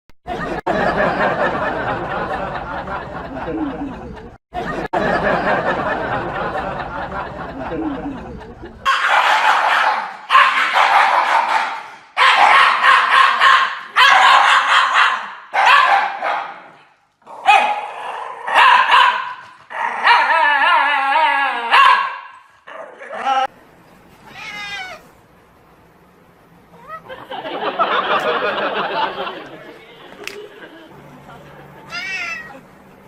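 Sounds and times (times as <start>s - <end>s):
dogs howling: 19.8s - 22.0s.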